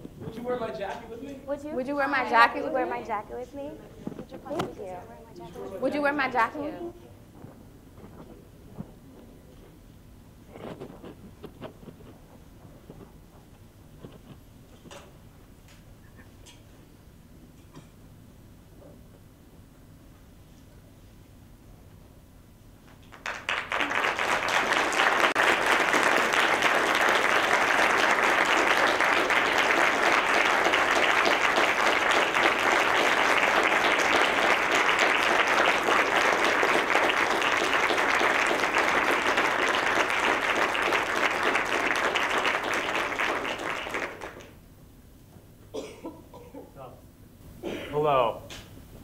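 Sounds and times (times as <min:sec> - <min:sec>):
audience applauding: 0:23.0 - 0:44.6.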